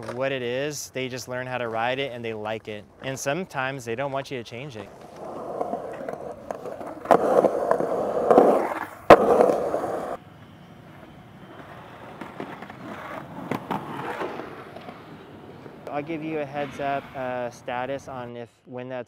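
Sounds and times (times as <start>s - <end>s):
skateboard wheels rolling on concrete: 0.0s - 18.3s
skateboard clacks: 4.9s - 10.2s.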